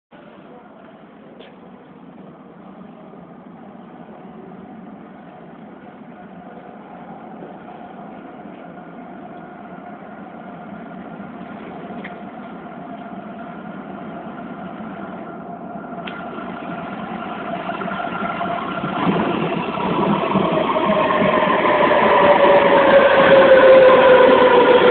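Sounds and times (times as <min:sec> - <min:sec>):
train rumble with motor whine: 0:02.0 - 0:24.9.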